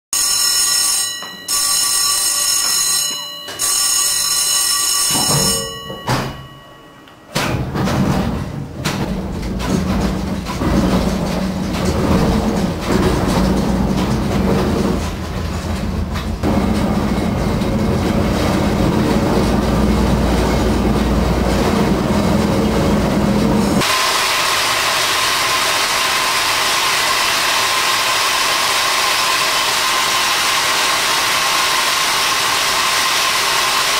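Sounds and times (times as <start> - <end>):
winch rumbling and humming: 3.6 - 33.9
smooth mechanical whirring: 12.4 - 23.9.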